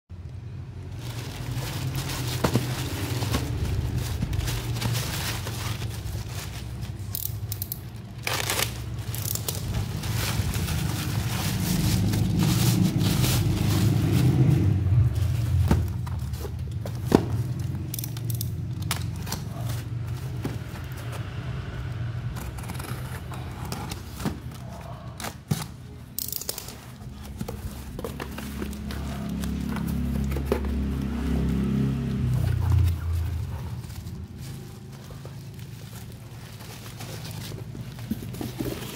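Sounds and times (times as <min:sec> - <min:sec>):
plastic bag crinkling: 0:00.5 - 0:15.6.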